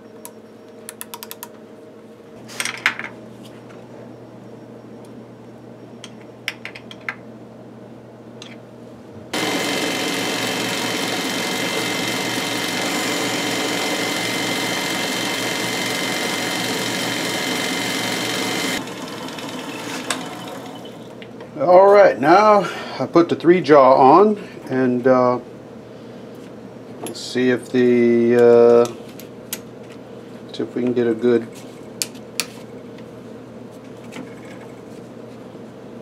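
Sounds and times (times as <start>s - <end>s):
faint hum: 0.0s - 9.4s
lathe running with high whine: 9.4s - 21.2s.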